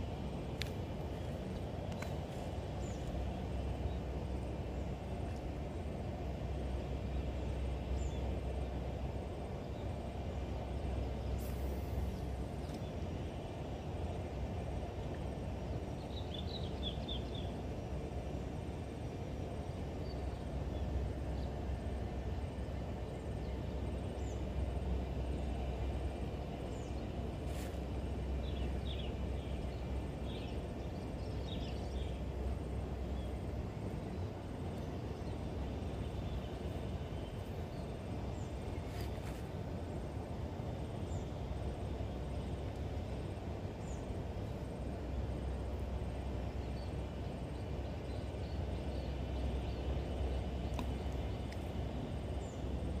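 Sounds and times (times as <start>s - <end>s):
low outdoor rumble: 0.0s - 53.0s.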